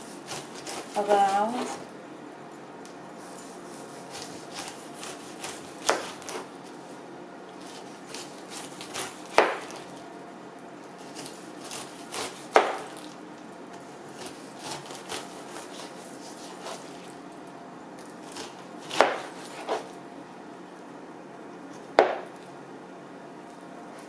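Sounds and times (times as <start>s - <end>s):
knife slicing pineapple rind: 0.0s - 1.9s, 3.2s - 6.8s, 7.6s - 10.0s, 11.0s - 17.2s, 18.0s - 20.0s.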